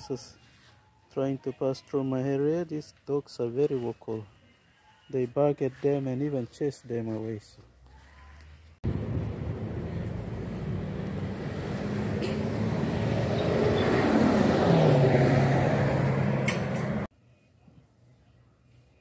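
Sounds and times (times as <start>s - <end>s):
vehicle engine running: 8.8s - 14.4s.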